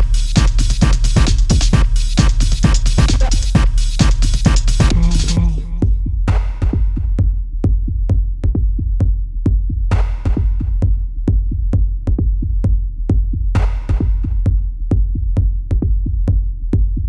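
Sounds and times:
electronic dance music: 0.0s - 6.5s.

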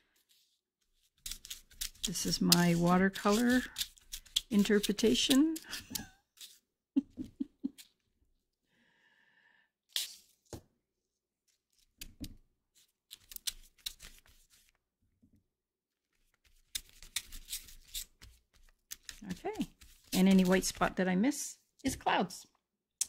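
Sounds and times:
paintbrush scratching on cardstock: 0.2s - 6.6s, 16.2s - 20.9s.

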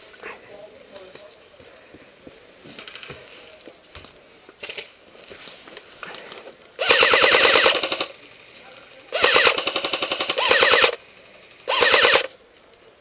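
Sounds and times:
airsoft gun full-auto burst: 6.8s - 8.2s, 9.1s - 12.3s.

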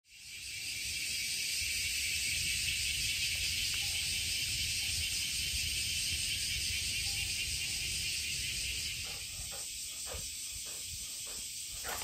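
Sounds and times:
cicadas droning: 0.1s - 12.0s.

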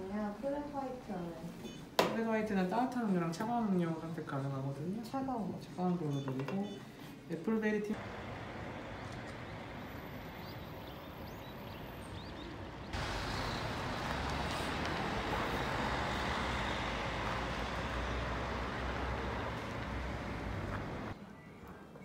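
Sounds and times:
traffic noise: 8.0s - 21.5s.

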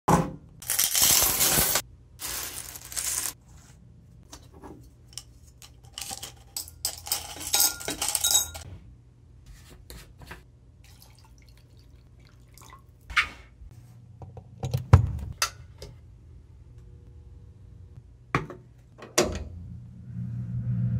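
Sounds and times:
coins clinking on concrete: 0.6s - 3.4s, 5.9s - 8.6s
glassware clinking: 6.6s - 8.6s.

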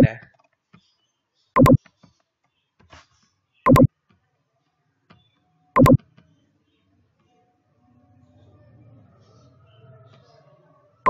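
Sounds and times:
loud sharp clicks: 3.7s - 3.9s, 5.8s - 6.0s.

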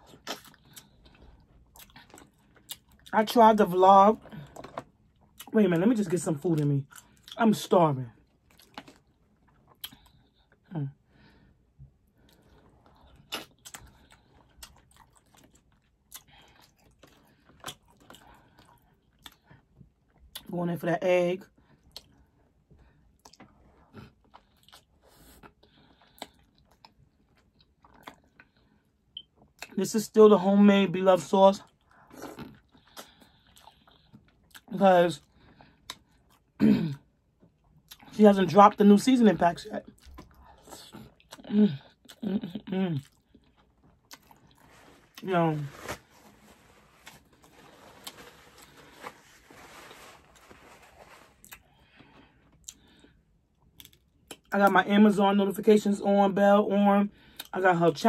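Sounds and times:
paper towel rustling: 44.6s - 51.4s.

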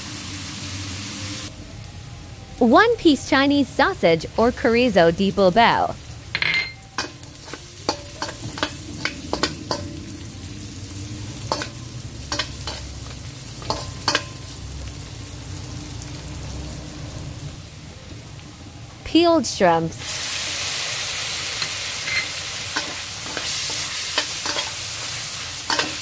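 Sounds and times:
food sizzling in oil: 0.0s - 1.5s, 3.9s - 18.4s, 20.0s - 26.0s
spatula scraping and clicking on pan: 11.5s - 12.9s, 21.6s - 24.8s, 25.7s - 26.0s.

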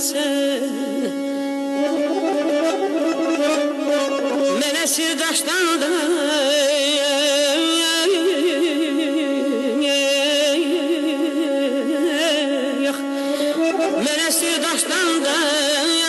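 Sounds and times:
wavering slow melody: 1.2s - 4.6s.

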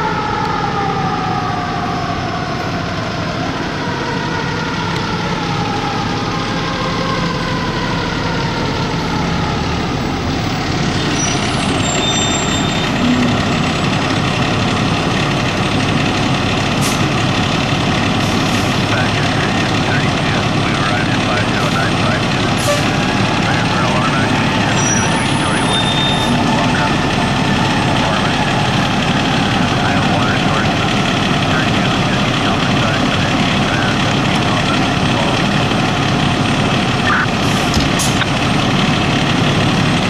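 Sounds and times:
fire engine siren: 0.0s - 40.0s
heavy truck engine rumble: 0.0s - 40.0s
street noise: 0.0s - 40.0s.

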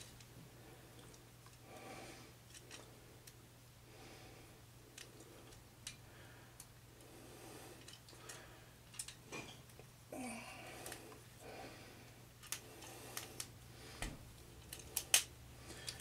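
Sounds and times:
soft breathy noise: 0.4s - 8.9s, 10.1s - 16.0s
plastic toy parts clicking: 8.9s - 9.2s.

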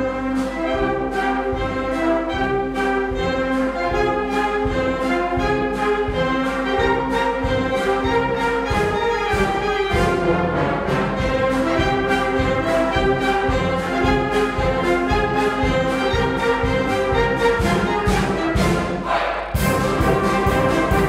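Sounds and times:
wind band playing chords: 0.0s - 21.0s
drum kit beat: 4.6s - 21.0s.

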